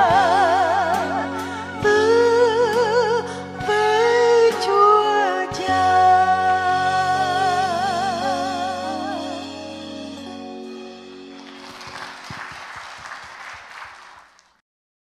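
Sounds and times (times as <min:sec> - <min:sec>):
keyboard and bass final chord: 0:00.0 - 0:12.4
audience clapping: 0:11.2 - 0:14.6.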